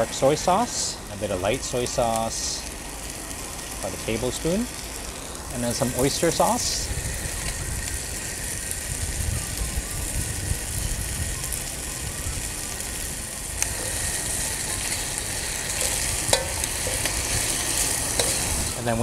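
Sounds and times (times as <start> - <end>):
food sizzling in a wok: 0.0 - 19.0
gas burner low rumble: 0.0 - 19.0
ladle clicking against wok: 15.6 - 18.7.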